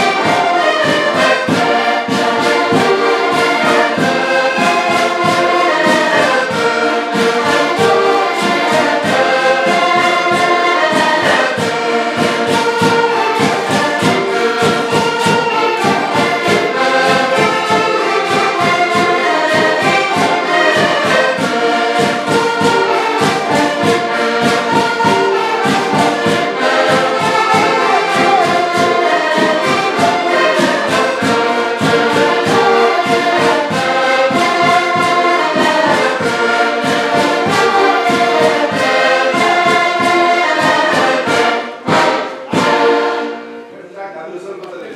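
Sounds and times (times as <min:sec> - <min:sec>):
hand drum beating: 0:00.0 - 0:43.2
button accordions playing: 0:00.0 - 0:44.1.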